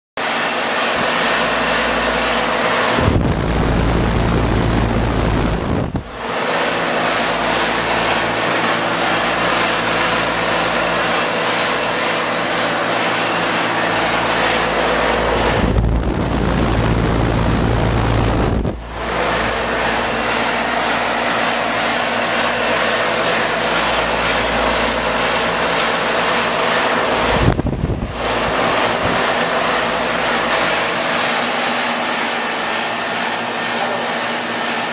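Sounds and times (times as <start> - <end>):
air conditioner fan rushing: 0.2 - 34.9
compressor humming: 0.2 - 34.9
wind blowing on microphone: 3.0 - 6.2, 15.5 - 18.9, 27.4 - 28.2.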